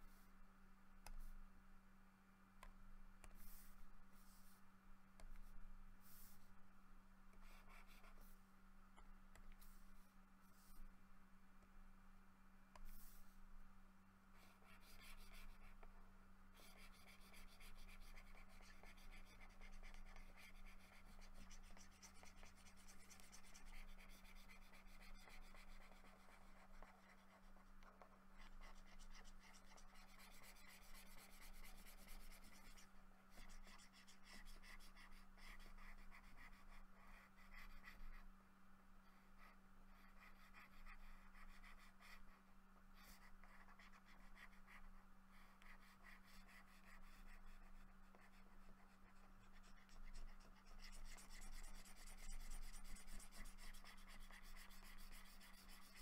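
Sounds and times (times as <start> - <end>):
stylus scratching on drawing tablet: 7.4 - 8.4, 14.4 - 38.3, 39.3 - 42.4, 43.0 - 56.0.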